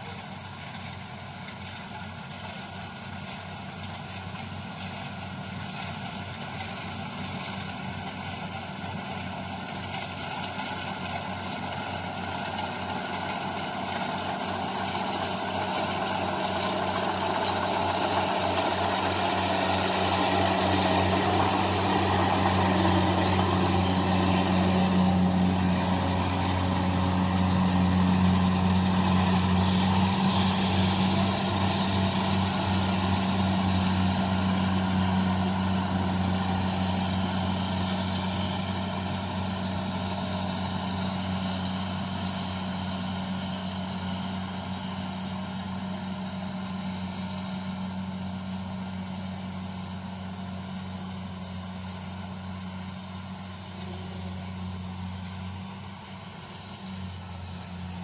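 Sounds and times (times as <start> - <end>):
combine harvester engine drone: 0.0 - 58.0.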